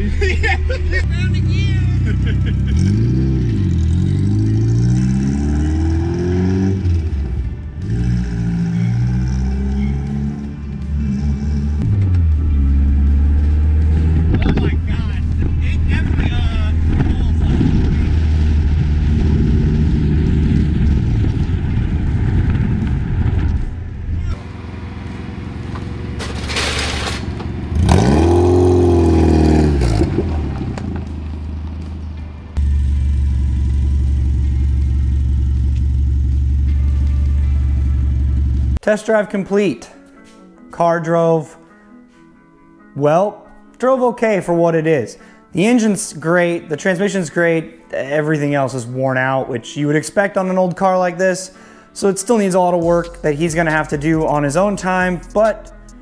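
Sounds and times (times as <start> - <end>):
car engine accelerating: 0.0 - 38.8.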